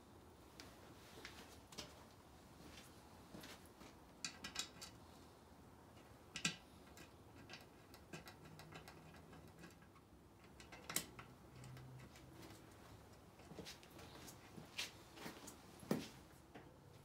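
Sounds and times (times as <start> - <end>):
metal parts clicking and tapping: 4.2 - 5.0, 5.9 - 13.5.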